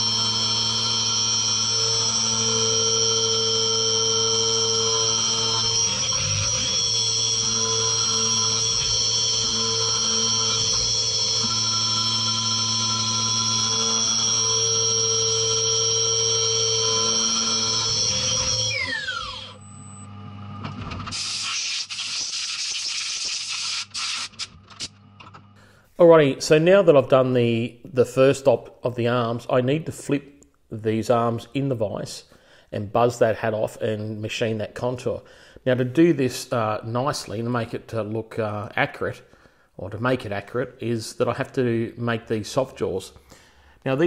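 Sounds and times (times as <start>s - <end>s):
high spindle whine: 0.0s - 25.0s
coolant spraying: 21.1s - 24.4s.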